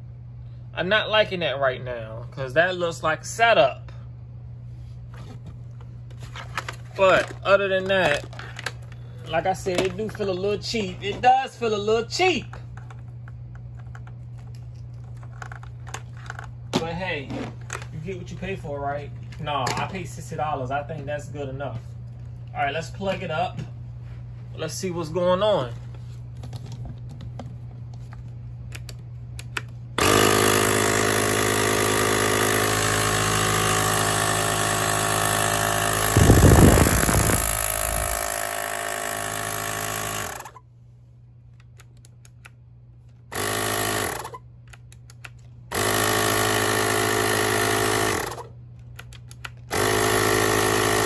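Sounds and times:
electric air compressor running: 0:30.0 - 0:40.6, 0:43.3 - 0:44.4, 0:45.7 - 0:48.6, 0:49.6 - 0:51.0.

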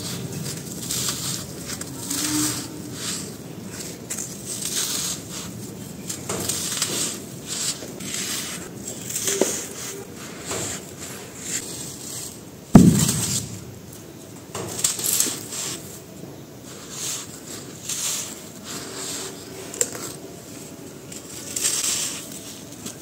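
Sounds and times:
chunk landing with a thud: 0:12.7 - 0:13.9.

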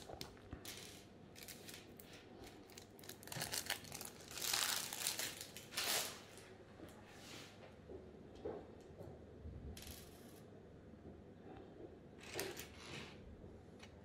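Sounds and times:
plastic bag crinkling: 0:01.4 - 0:06.5.

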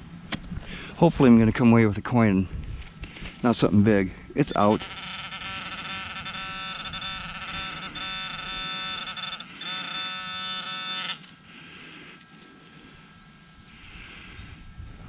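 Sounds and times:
metal detector probe buzzing: 0:03.4 - 0:11.7.

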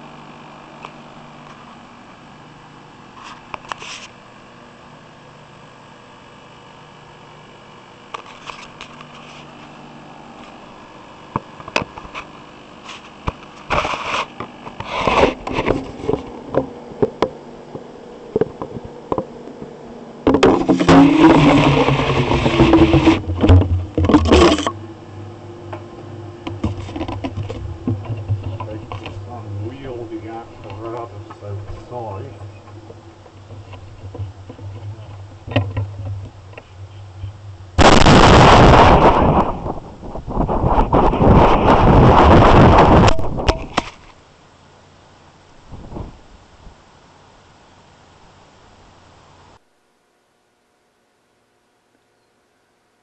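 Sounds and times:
loud continuous noise: 0:00.0 - 0:51.7
steady low hum: 0:00.0 - 0:53.0
muffled clicks and knocks: 0:13.2 - 0:24.8, 0:25.7 - 0:38.1
plastic tube scraping: 0:13.7 - 0:16.7, 0:20.3 - 0:24.8, 0:26.4 - 0:37.4
plastic handling clicks and knocks: 0:20.3 - 0:24.8, 0:26.5 - 0:29.2.

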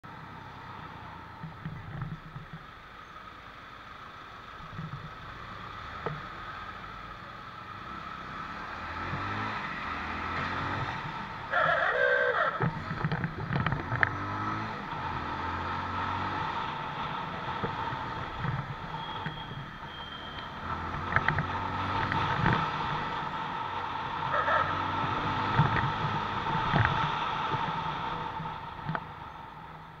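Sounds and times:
motorcycle engine revving: 0:07.7 - 0:29.3.

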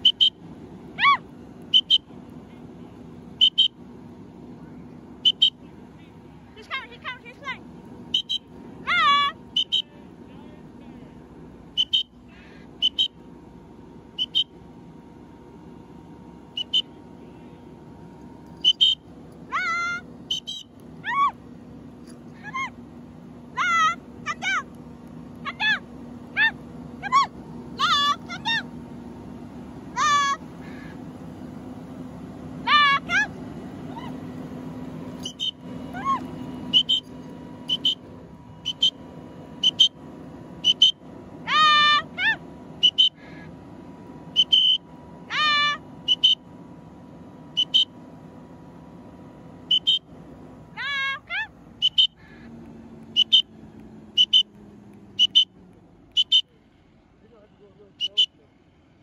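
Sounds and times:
fire engine pump droning: 0:00.0 - 0:59.0
person whistling two-note calls: 0:01.7 - 0:02.1, 0:11.8 - 0:12.2, 0:12.8 - 0:13.2, 0:44.4 - 0:44.8, 0:51.8 - 0:52.2, 0:53.2 - 0:53.5, 0:54.2 - 0:54.5, 0:55.2 - 0:55.5, 0:56.1 - 0:56.5
bird chirping: 0:11.8 - 0:12.1, 0:16.6 - 0:16.9, 0:18.6 - 0:19.0, 0:20.3 - 0:20.7, 0:35.2 - 0:35.6, 0:36.7 - 0:38.0, 0:51.8 - 0:52.2, 0:54.2 - 0:54.5.

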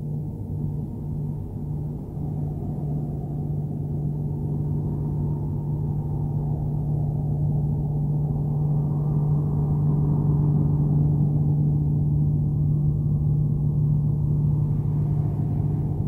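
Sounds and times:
low droning hum: 0:00.0 - 0:16.0.

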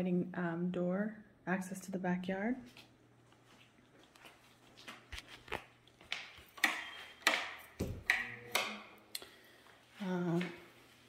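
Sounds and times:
footsteps on tile floor: 0:02.6 - 0:08.1.

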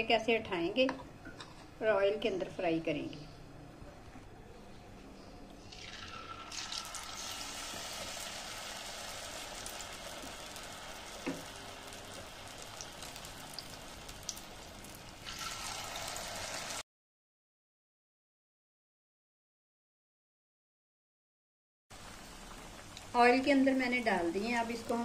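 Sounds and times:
battered potatoes sizzling in oil: 0:05.6 - 0:16.8, 0:22.0 - 0:25.0.

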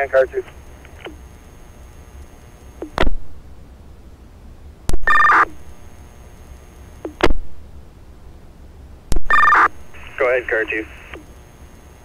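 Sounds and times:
radio squelch crackle: 0:00.0 - 0:03.2, 0:09.1 - 0:12.0
low radio hum: 0:00.0 - 0:12.0.

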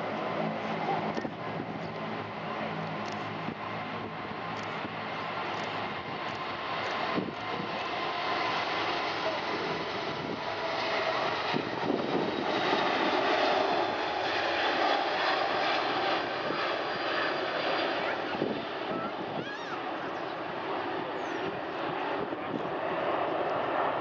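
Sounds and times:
jet engines rushing: 0:00.0 - 0:24.0.

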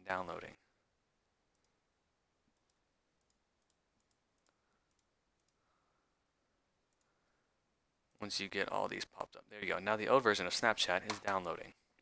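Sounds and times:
computer mouse clicks: 0:02.6 - 0:05.6.

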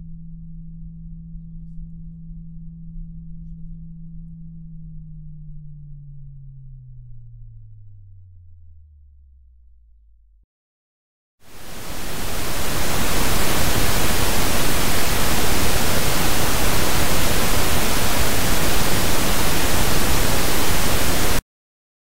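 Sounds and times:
pink noise signal: 0:11.5 - 0:21.4
faint low hum: 0:11.6 - 0:21.4.

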